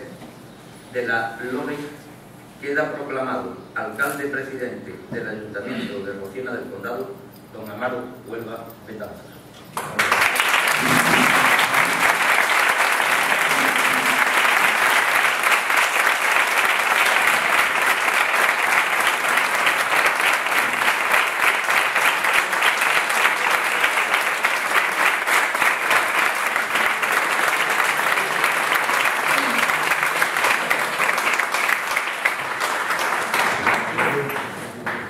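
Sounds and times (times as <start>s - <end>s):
crowd applauding: 9.8s - 35.0s.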